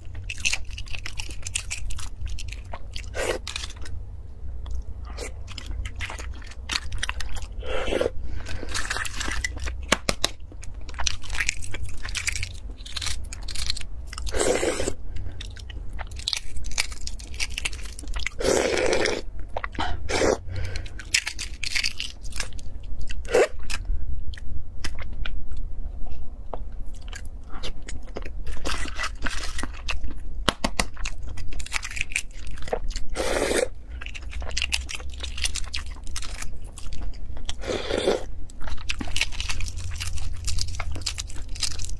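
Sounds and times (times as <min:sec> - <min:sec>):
chewing: 0:31.0 - 0:41.9.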